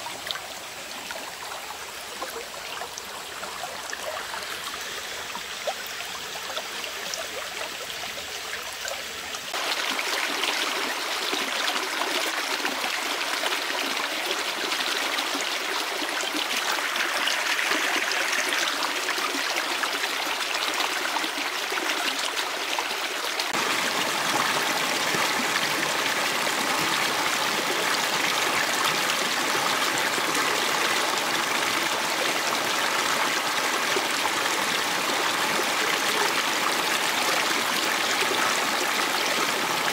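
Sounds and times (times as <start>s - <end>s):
stream flowing: 0.0s - 39.9s.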